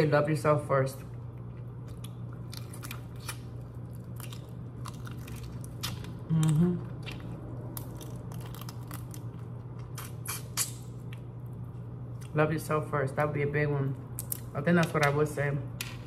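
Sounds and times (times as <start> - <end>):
chewing and crunching: 1.0 - 12.4
low hum of voice: 6.2 - 7.2.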